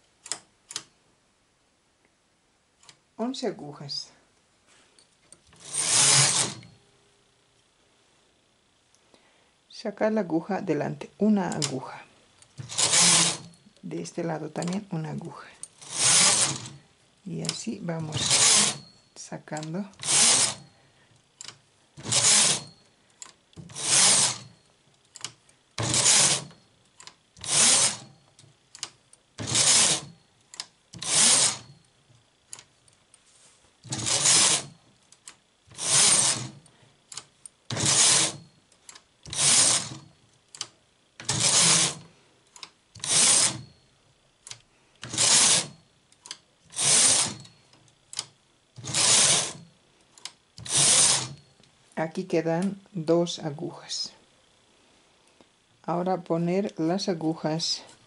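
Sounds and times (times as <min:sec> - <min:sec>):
knitting machine carriage swooshing: 0:05.6 - 0:06.7, 0:12.6 - 0:13.6, 0:15.8 - 0:16.8, 0:17.4 - 0:18.9, 0:19.9 - 0:20.7, 0:22.0 - 0:22.8, 0:23.7 - 0:24.6, 0:25.8 - 0:26.6, 0:27.4 - 0:28.1, 0:29.4 - 0:30.1, 0:31.0 - 0:31.8, 0:33.8 - 0:34.8, 0:35.7 - 0:36.6, 0:37.7 - 0:38.5, 0:39.2 - 0:40.1, 0:41.2 - 0:42.1, 0:43.0 - 0:43.7, 0:45.0 - 0:45.8, 0:46.7 - 0:47.5, 0:48.8 - 0:49.7, 0:50.6 - 0:51.4.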